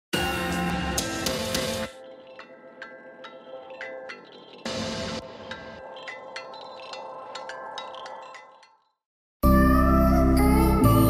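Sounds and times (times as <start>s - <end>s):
sharp musical hits: 4.6s - 6.5s.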